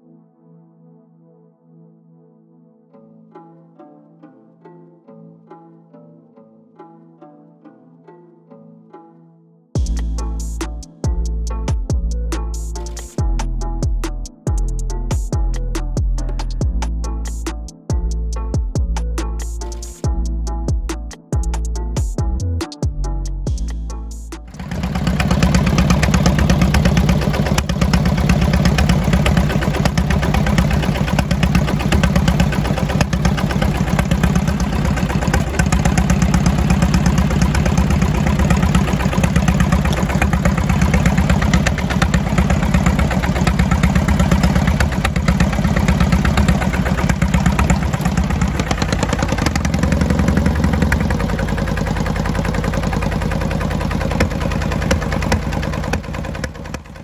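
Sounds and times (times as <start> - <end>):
tractor engine running: 24.5 - 57.0.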